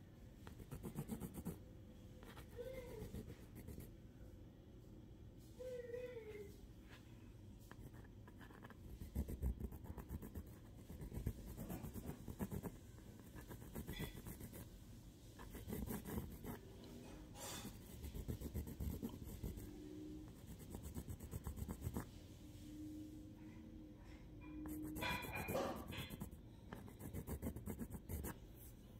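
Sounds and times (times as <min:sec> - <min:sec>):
pencil scratching on paper: 0:00.5 - 0:01.6, 0:02.2 - 0:03.9, 0:07.7 - 0:14.7, 0:15.4 - 0:22.1, 0:24.4 - 0:28.7.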